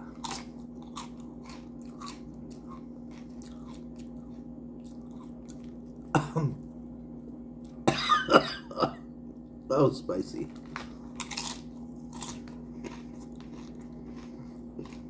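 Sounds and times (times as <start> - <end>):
faint steady hum: 0.0 - 15.0
crunching chips: 0.1 - 6.1, 10.5 - 15.0.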